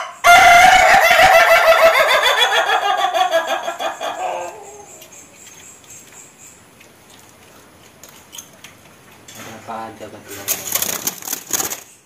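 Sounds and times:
rooster crowing: 0:00.0 - 0:05.1.

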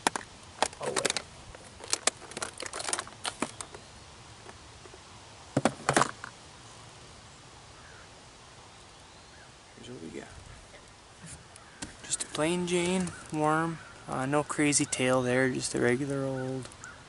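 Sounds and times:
fishing tackle clicking and rattling: 0:00.0 - 0:03.8.

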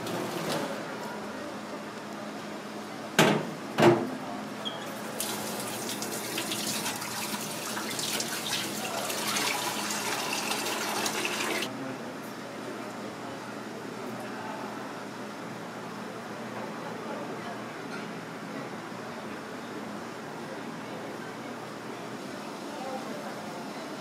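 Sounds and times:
tap water running into sink: 0:05.2 - 0:11.7.

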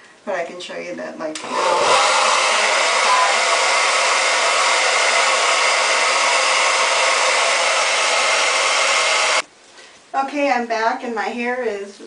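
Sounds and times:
hair dryer blowing: 0:01.3 - 0:09.5.

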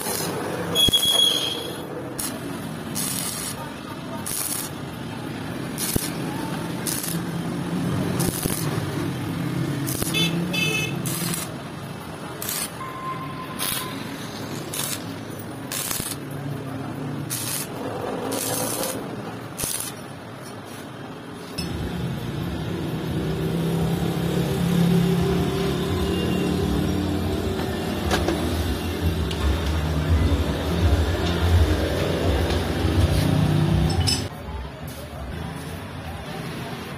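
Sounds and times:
welding arc crackling: 0:00.0 - 0:12.9, 0:13.5 - 0:20.2.

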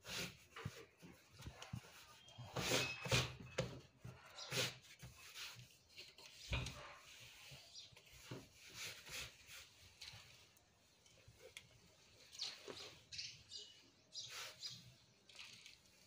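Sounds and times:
hand smoothing fabric: 0:07.0 - 0:10.4.

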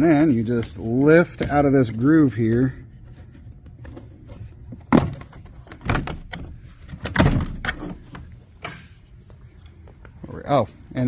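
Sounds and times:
plastic panel knocking and clattering: 0:04.8 - 0:08.0.

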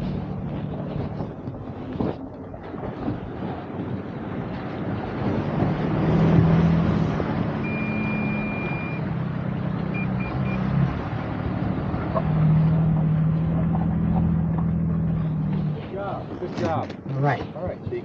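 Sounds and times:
vehicle engine hum: 0:00.0 - 0:18.0
short beeps: 0:07.6 - 0:09.0, 0:10.0 - 0:10.6
vehicle chime long tone: 0:07.6 - 0:09.1.

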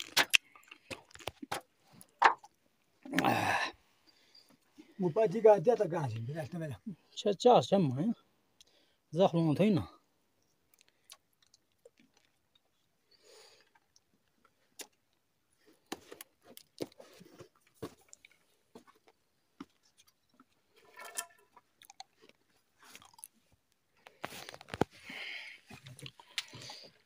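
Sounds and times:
rocks crunching and knocking: 0:00.0 - 0:02.5.

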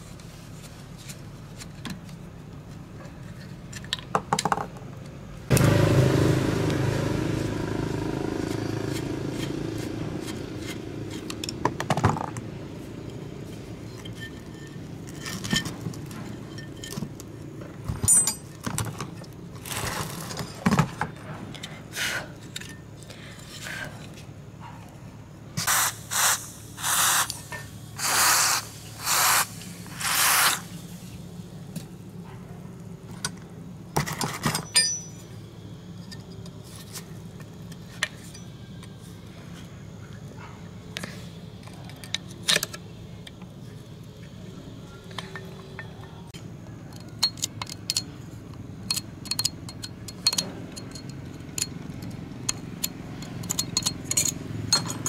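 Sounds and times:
grinder motor winding down: 0:05.5 - 0:10.7
short scraping strokes: 0:25.6 - 0:30.8.

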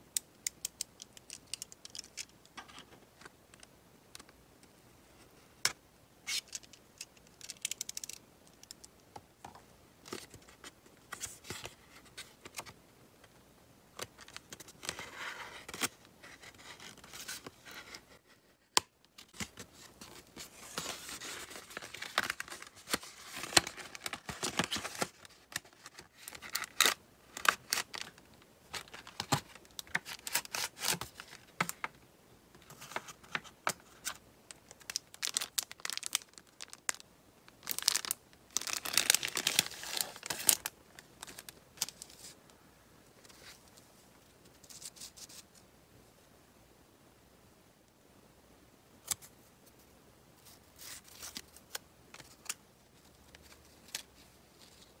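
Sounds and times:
plastic and paper crinkling: 0:19.2 - 0:31.9, 0:32.6 - 0:42.4.

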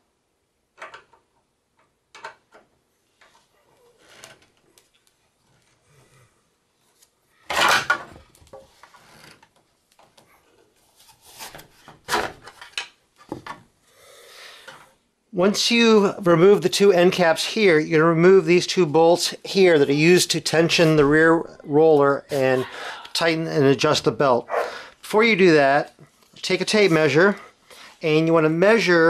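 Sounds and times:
plastic parts clattering: 0:07.5 - 0:08.8.

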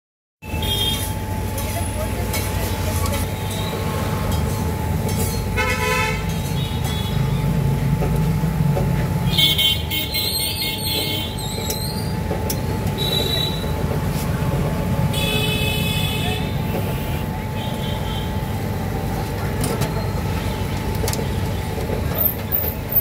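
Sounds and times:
vehicle horns honking: 0:00.4 - 0:01.1, 0:05.6 - 0:07.5, 0:09.2 - 0:11.4, 0:13.0 - 0:13.8, 0:15.1 - 0:18.4
street traffic: 0:00.4 - 0:23.0.

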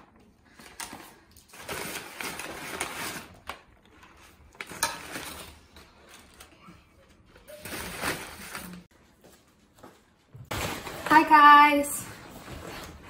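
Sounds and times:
packing paper rustling: 0:00.5 - 0:06.7, 0:07.3 - 0:08.9.

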